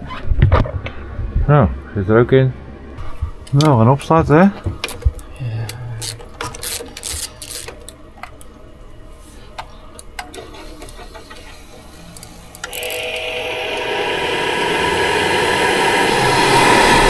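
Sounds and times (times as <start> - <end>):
heater burner and fan rushing: 6.1 - 17.0
heater clicks and ticks: 9.6 - 17.0.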